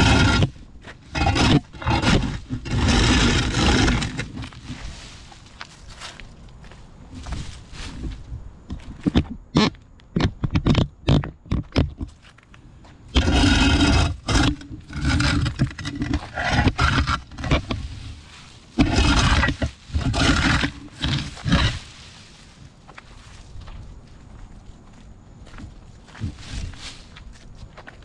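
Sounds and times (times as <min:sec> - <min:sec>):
shovel blade scraping: 0:00.0 - 0:05.5, 0:13.1 - 0:22.5.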